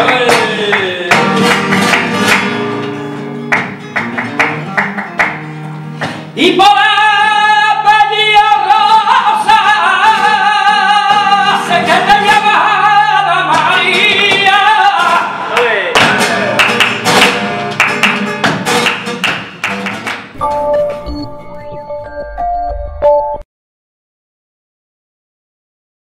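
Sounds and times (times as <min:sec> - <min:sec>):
man singing flamenco: 0:00.0 - 0:01.8, 0:06.2 - 0:17.5
flamenco guitar: 0:00.0 - 0:22.0.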